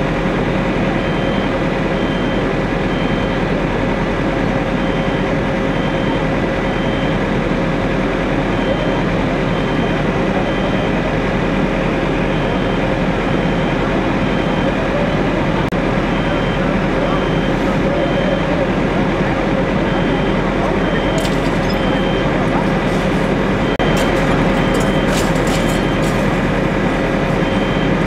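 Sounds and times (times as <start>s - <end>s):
diesel engines rumbling: 0.0s - 28.0s
faint high beeps: 19.9s - 22.4s.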